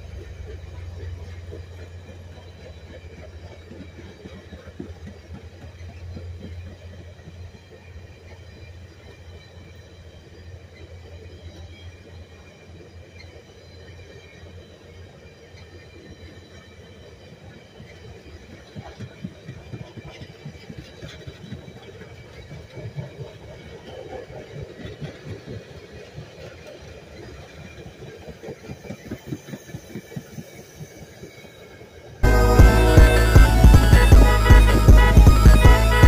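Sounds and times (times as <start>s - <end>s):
train rumbling past: 0.0s - 36.0s
train wheels clacking on rails: 0.0s - 36.0s
music: 32.2s - 36.0s.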